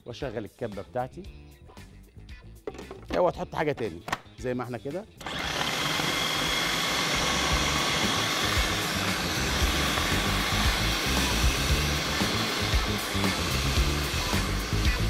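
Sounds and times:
food processor chopping: 0:05.2 - 0:15.0.

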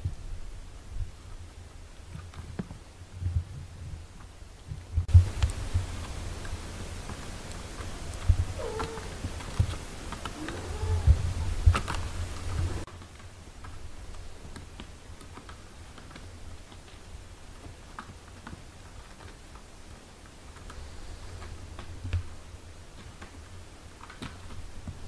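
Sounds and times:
kittens suckling: 0:07.8 - 0:12.9
soft cat mew: 0:08.6 - 0:09.2, 0:10.4 - 0:11.3
small clicks and smacks: 0:12.8 - 0:20.8, 0:22.9 - 0:25.0.

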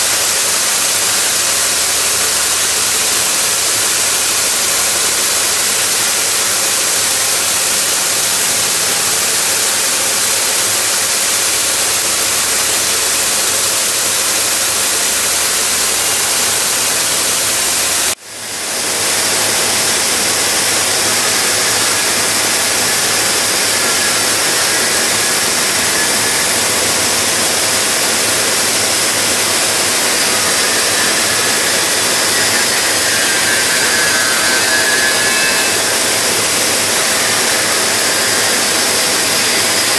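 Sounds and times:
polishing machine hissing: 0:00.0 - 0:39.9.

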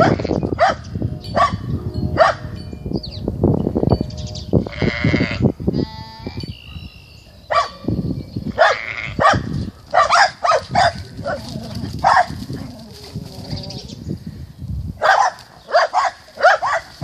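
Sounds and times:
lambs bleating: 0:00.0 - 0:00.4, 0:04.7 - 0:06.4, 0:08.8 - 0:09.2.

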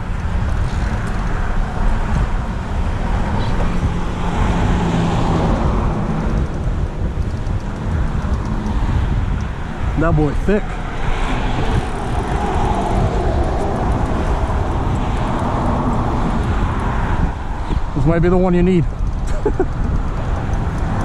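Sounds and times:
road traffic driving past: 0:00.0 - 0:21.0
vehicle engine hum: 0:00.0 - 0:21.0.

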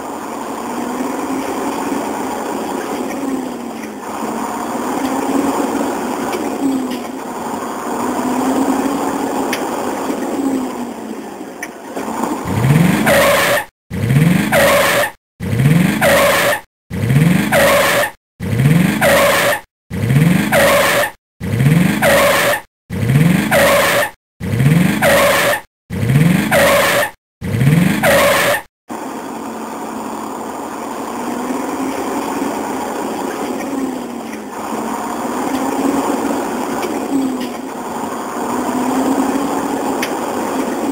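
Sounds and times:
vehicle engine revving: 0:12.0 - 0:20.8, 0:21.4 - 0:26.8.

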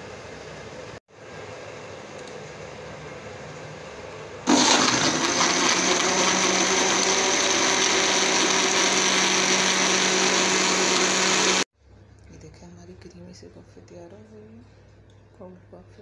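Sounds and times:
electric blender running: 0:04.5 - 0:11.7.

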